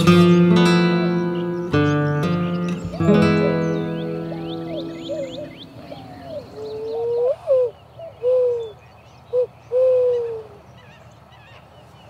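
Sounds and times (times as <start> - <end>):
high bird chirps: 0.0 - 9.0.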